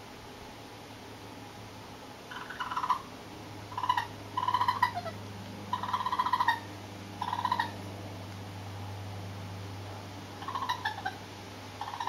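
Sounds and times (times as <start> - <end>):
steady low hum: 0.0 - 12.0
baby raccoons trilling: 2.3 - 3.1, 3.7 - 7.8, 10.3 - 12.0.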